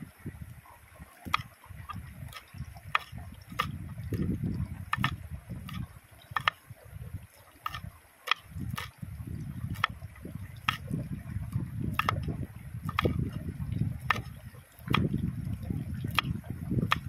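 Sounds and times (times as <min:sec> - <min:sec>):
stream water rushing: 0:00.0 - 0:17.0.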